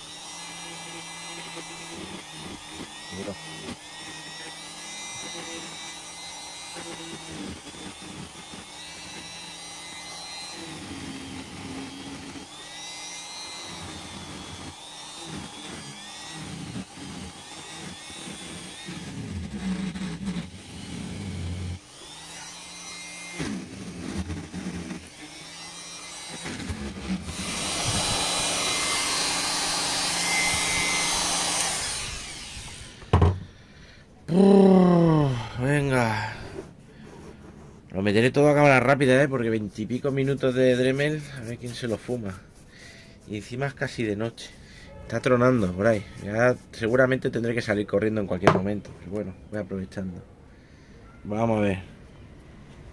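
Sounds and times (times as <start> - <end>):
grinder carving wood: 0.0 - 49.6
knock: 33.1 - 33.4.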